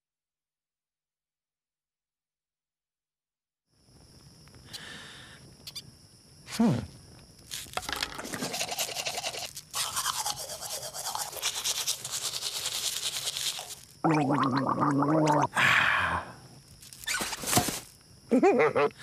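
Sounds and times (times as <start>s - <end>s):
teeth being brushed: 7.5s - 14.0s.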